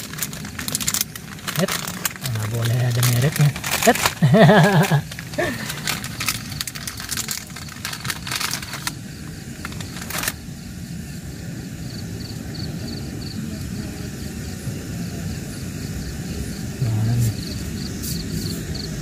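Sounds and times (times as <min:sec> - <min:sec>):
plastic wrappers crinkling and tearing: 0:00.0 - 0:10.4
steady low rumble: 0:00.0 - 0:19.0.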